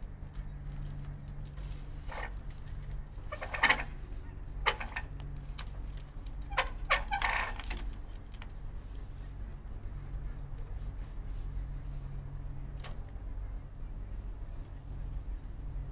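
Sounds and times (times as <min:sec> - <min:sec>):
flagpole pulley squeaking and clinking: 0:00.2 - 0:08.5.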